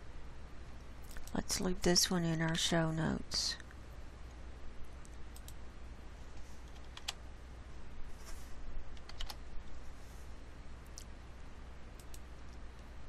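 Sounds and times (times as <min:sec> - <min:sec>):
faint low hum: 0:00.0 - 0:13.0
keyboard and mouse clicks: 0:06.6 - 0:07.2, 0:08.9 - 0:09.4, 0:12.0 - 0:12.9.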